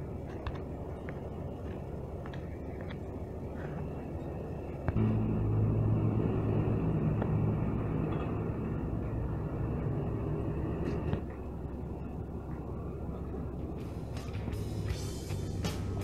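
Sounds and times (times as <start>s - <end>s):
diesel engine revving: 4.9s - 11.6s.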